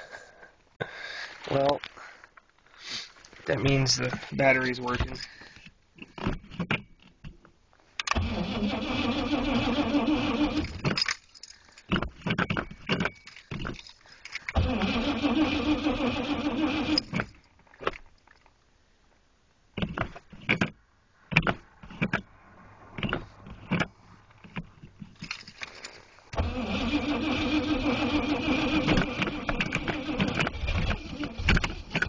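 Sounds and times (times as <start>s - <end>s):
car engine cranking: 8.0s - 18.1s, 19.8s - 32.0s.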